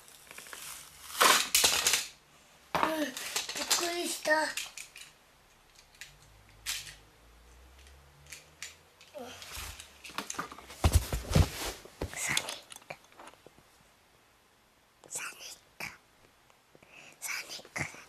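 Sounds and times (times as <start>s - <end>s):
plastic toy clicks and rattles: 0.1s - 2.2s, 3.0s - 7.0s, 7.8s - 10.5s.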